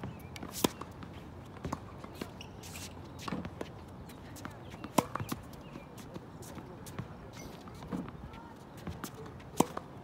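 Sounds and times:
racket hitting ball: 4.8 - 5.4, 9.5 - 9.9.

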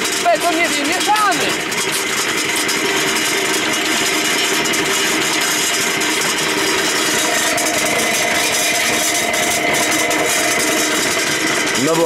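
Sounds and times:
concrete mixer running: 0.0 - 12.0.

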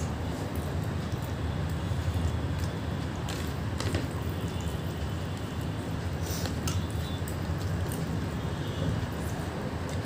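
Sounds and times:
eating clicks and squelches: 0.0 - 5.7.

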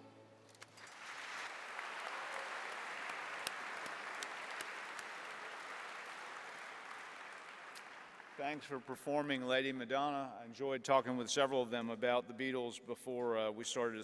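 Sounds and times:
audience applauding: 0.6 - 9.1.

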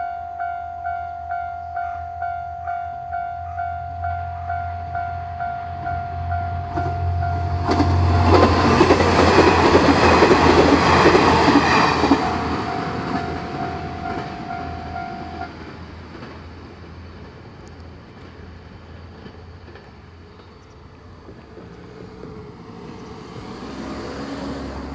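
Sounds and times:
crossing warning bell ringing: 0.0 - 15.6
diesel railcar passing: 0.0 - 24.9
wheels clattering on rails: 6.6 - 24.9.

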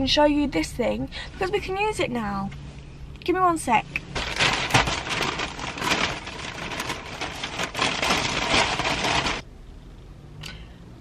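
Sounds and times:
paper bag rustling: 4.1 - 9.4.

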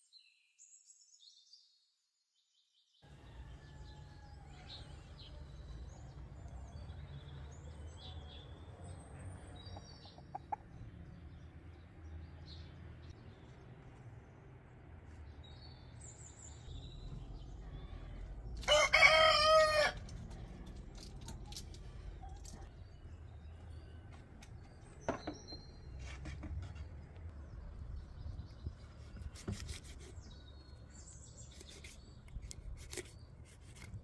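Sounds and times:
rooster crowing: 3.1 - 5.0, 18.6 - 20.1.

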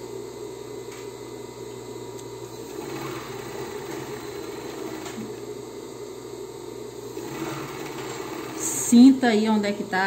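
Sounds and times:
sewing machine humming: 2.6 - 5.6, 7.0 - 9.3.

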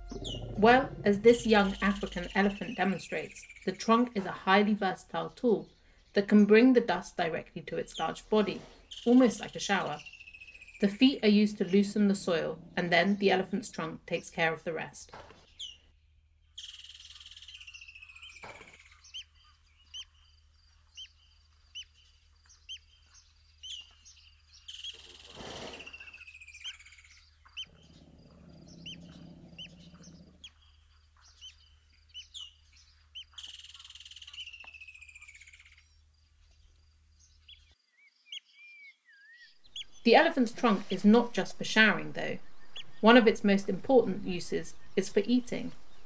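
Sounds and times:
low rumble: 0.0 - 2.6
birds chirping and calling: 0.0 - 14.0, 15.0 - 46.0.

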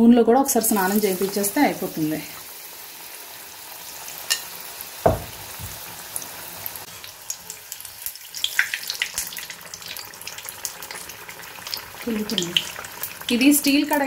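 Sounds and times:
batter frying in hot oil: 0.4 - 14.0
thud: 5.0 - 5.8.

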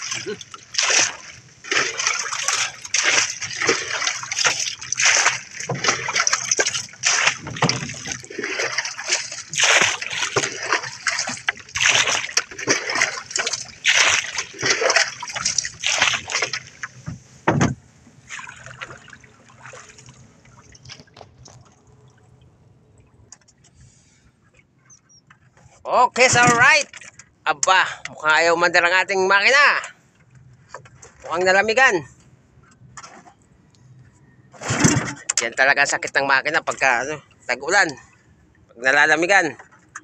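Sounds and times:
water splashing against boat hull: 0.0 - 27.8, 34.5 - 38.2.

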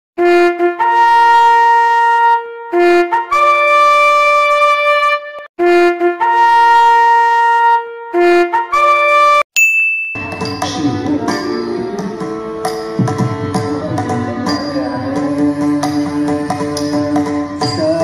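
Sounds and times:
brass horns blowing: 0.2 - 9.4.

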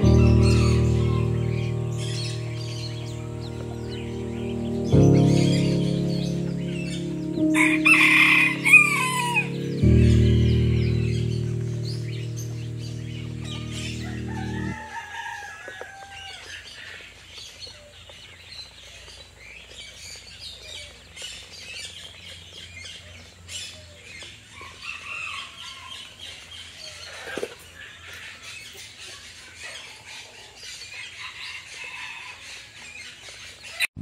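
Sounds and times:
low background music chord: 0.0 - 14.9
ducklings peeping: 0.0 - 15.3.

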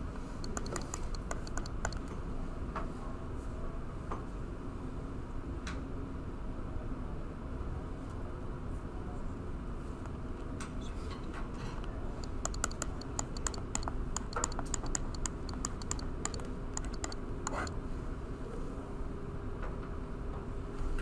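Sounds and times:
stylus tapping on touchscreen: 0.4 - 2.1, 12.2 - 17.7.

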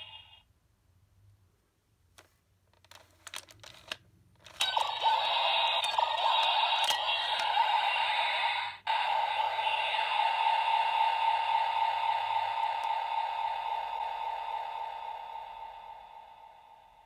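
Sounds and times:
electronic toy sound effects: 0.0 - 0.4, 4.6 - 16.6
plastic toy clicks and scrapes: 2.8 - 7.6
spinning disc: 4.5 - 16.3.

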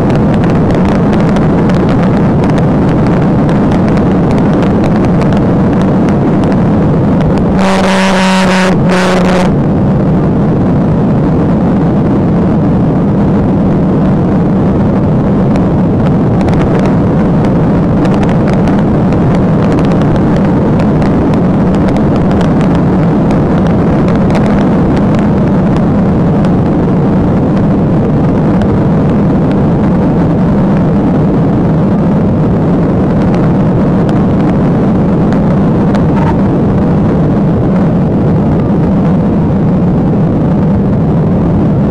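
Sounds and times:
car wind tyre and engine noise: 0.0 - 41.9
steady pitched tone: 0.2 - 10.8, 35.4 - 36.8.

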